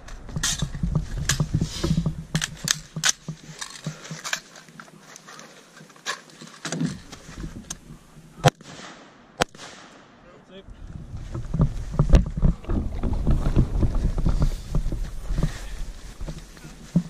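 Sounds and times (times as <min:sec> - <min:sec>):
rifle shots: 0:08.4 - 0:10.2.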